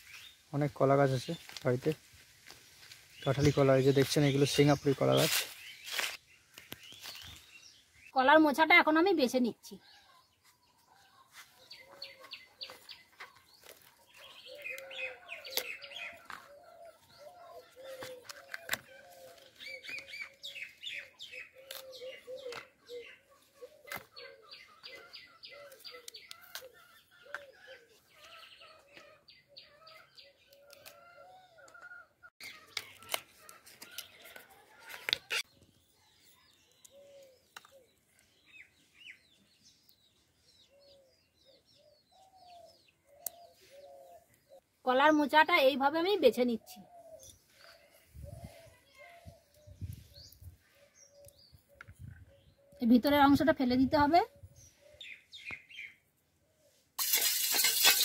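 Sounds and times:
florets snapping and rustling: 1.2s - 4.1s, 15.4s - 16.5s, 21.6s - 22.7s, 25.7s - 26.7s, 32.4s - 35.4s
birds chirping: 2.8s - 58.0s.

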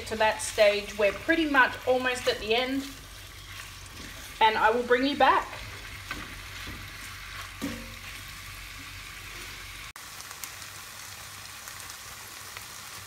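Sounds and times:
spatula stirring: 0.0s - 9.8s
food sizzling in butter: 0.0s - 13.0s.

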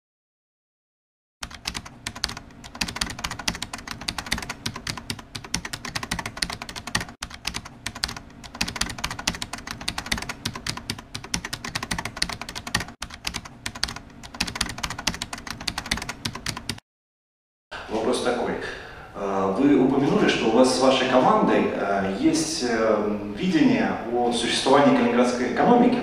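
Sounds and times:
rapid keyboard typing: 1.4s - 16.8s.

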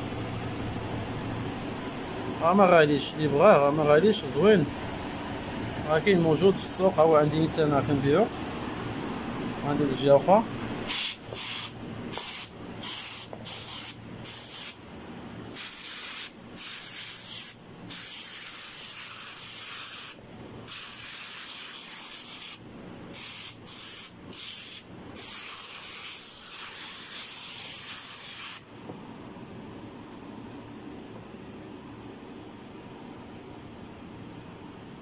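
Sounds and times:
spray can hissing: 10.9s - 14.8s, 15.6s - 22.6s, 23.2s - 28.6s.

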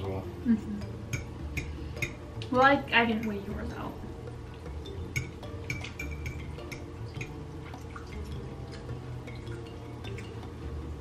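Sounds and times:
cutlery clinking on plates: 5.1s - 7.4s.

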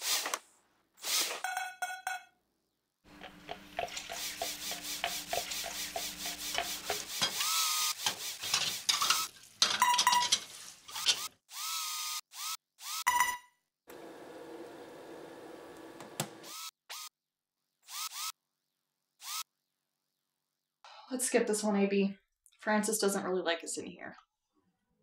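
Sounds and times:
cloth scrubbing a counter: 3.4s - 9.3s.

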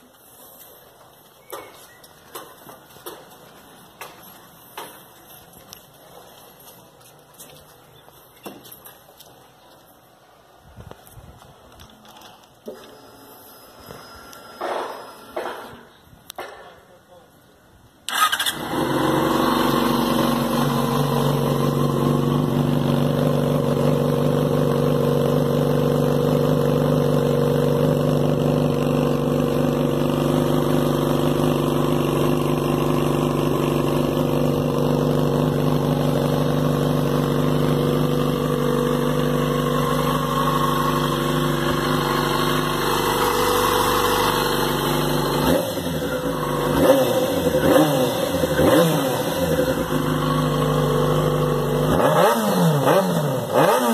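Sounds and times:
motorcycle engine idling and revving: 18.1s - 53.9s.

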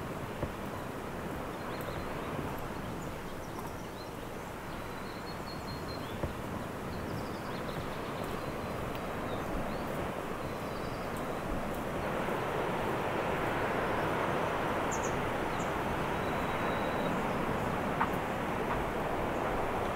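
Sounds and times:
small birds chirping: 1.5s - 11.4s.

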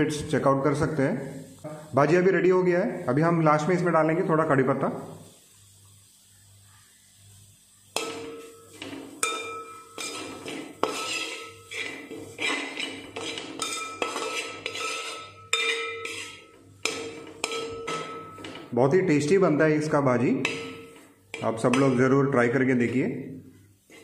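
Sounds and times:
metal spatula scraping pot: 8.0s - 18.7s, 20.4s - 22.4s.

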